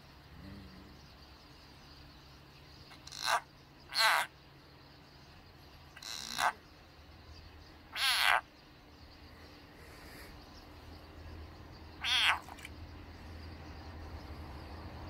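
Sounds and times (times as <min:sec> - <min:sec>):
frog croaking: 0:00.0 - 0:01.4, 0:02.9 - 0:04.4, 0:05.9 - 0:06.7, 0:07.9 - 0:08.5, 0:11.9 - 0:12.8.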